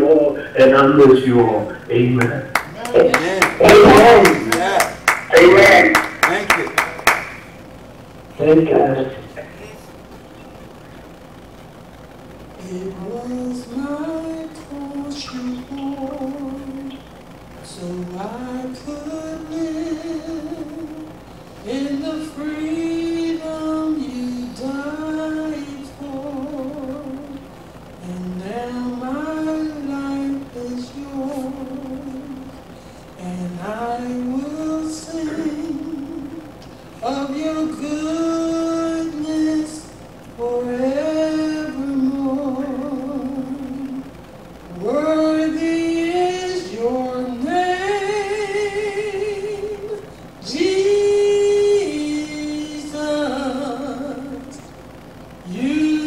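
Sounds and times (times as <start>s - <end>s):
woman singing a hymn: 17.7s - 27.4s, 33.2s - 54.6s.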